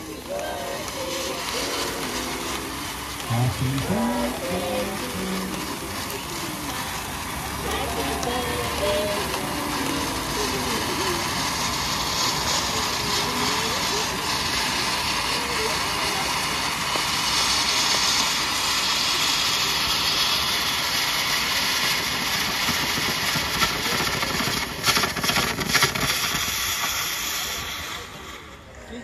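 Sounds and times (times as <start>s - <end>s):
spark fountains hissing: 0.0s - 29.0s
sharp cracks: 21.8s - 27.6s.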